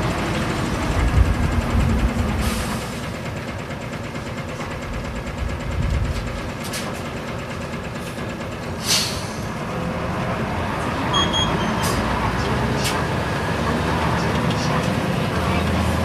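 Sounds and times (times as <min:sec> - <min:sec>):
bus diesel engine rumbling: 0:00.0 - 0:16.0
air release hiss: 0:08.8 - 0:09.5.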